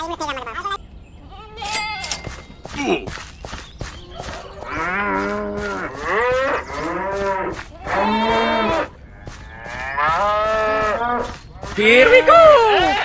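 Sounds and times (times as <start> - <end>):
cows mooing: 4.6 - 11.4.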